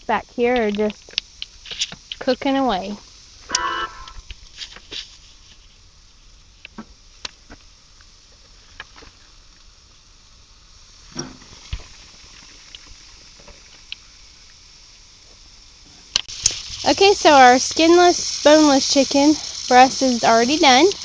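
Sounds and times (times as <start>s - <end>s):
fat popping and crackling: 0.0s - 5.9s, 10.9s - 14.7s, 15.3s - 21.0s
chicken sizzling on a grill: 0.0s - 21.0s.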